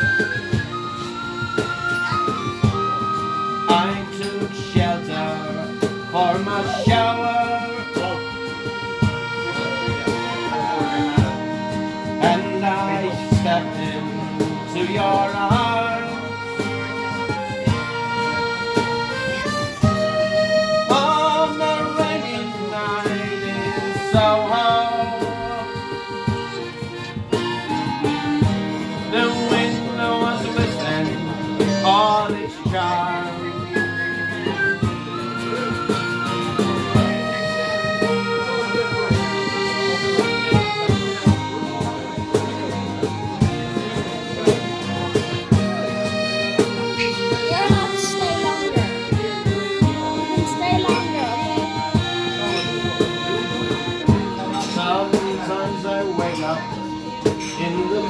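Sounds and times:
tin whistle melody: 0.0s - 13.1s, 14.8s - 40.9s
accordion chords: 0.0s - 58.0s
strummed acoustic guitar: 0.0s - 58.0s.

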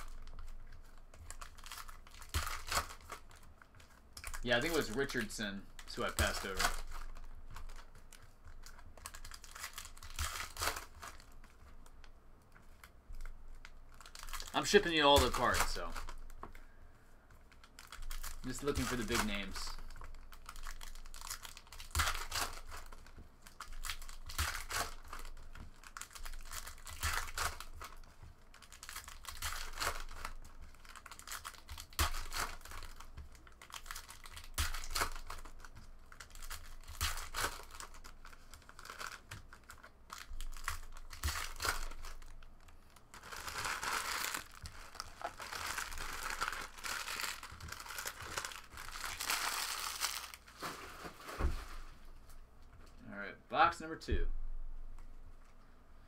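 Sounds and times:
trading cards clicking and rustling: 0.0s - 11.6s, 13.9s - 16.6s, 17.4s - 42.3s
foil wrappers crinkling: 0.0s - 11.9s, 12.6s - 52.0s.

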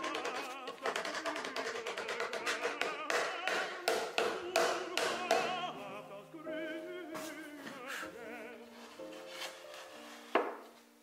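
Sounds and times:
person singing with vibrato: 0.0s - 9.0s.

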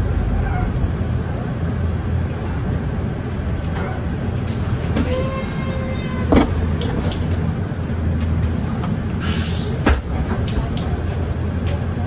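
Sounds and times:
bus engine drone: 0.0s - 12.0s
short hiss: 9.2s - 9.8s.

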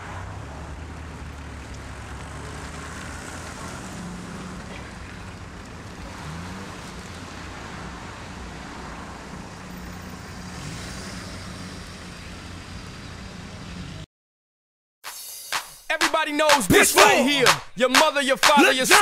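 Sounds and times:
cars driving past: 0.0s - 14.1s
tyre and road noise: 0.0s - 14.1s, 16.0s - 19.0s.

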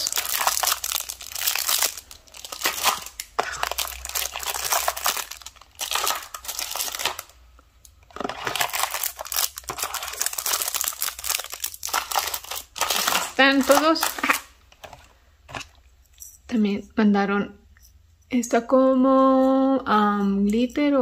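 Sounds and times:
plastic bags crinkling: 0.0s - 15.8s.

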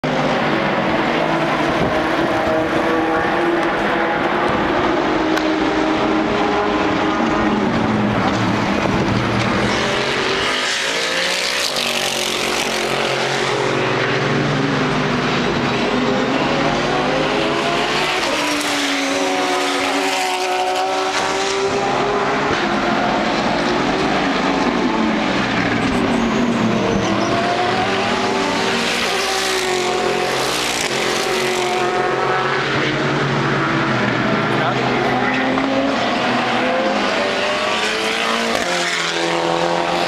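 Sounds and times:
race car engines passing: 0.0s - 40.0s.

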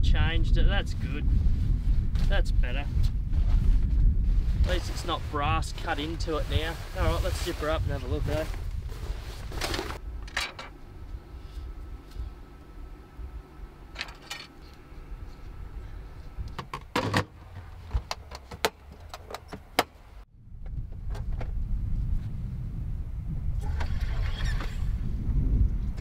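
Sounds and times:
canvas rustling: 2.7s - 10.0s.

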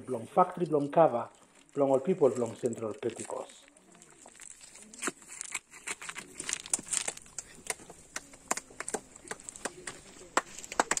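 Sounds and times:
gravel crunching and clicking: 0.4s - 11.0s
faint voices: 7.2s - 11.0s.

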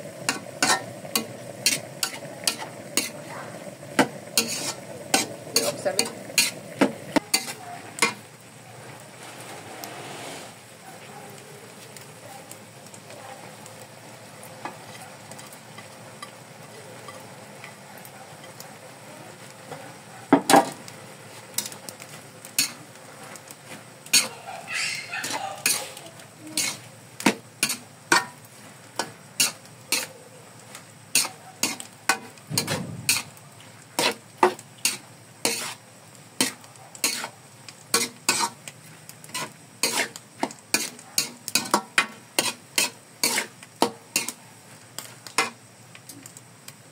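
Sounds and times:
spatula scraping metal wok: 0.0s - 8.3s, 9.2s - 10.6s, 22.5s - 22.8s, 23.7s - 28.4s, 29.0s - 30.1s, 31.1s - 33.4s, 34.0s - 35.8s, 36.4s - 37.3s, 37.9s - 44.4s, 45.0s - 45.6s
faint sizzle: 0.0s - 46.9s.

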